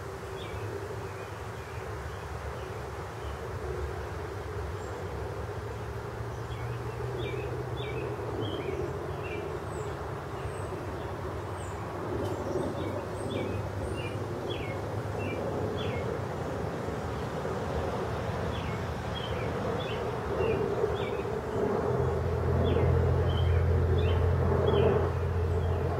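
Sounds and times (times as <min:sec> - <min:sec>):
distant traffic rumble: 0:00.0 - 0:25.9
small birds chirping: 0:06.3 - 0:16.2, 0:17.0 - 0:25.9.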